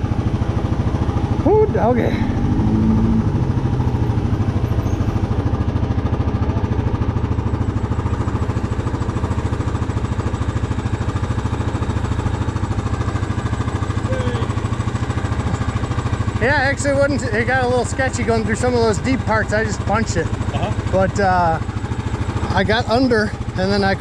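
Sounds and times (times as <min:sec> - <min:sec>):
atv engine idling: 0:00.0 - 0:24.0.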